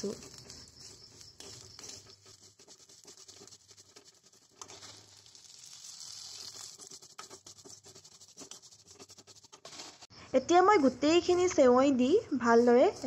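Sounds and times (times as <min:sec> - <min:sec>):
spoon scraping a metal pan: 0:00.0 - 0:08.8
noodles rustling and clicking: 0:00.0 - 0:10.1.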